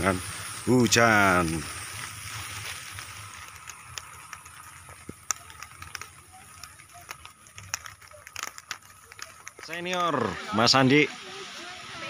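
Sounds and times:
light rain falling: 0.0 - 12.0
raindrops ticking: 0.0 - 12.0.

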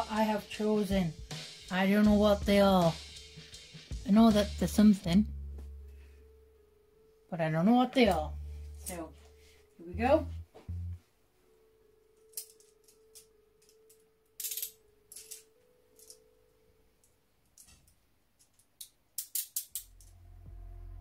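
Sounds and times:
handcuffs metal clicks: 12.3 - 16.2, 17.6 - 20.2
handcuff ratchet clicks: 18.5 - 20.2.

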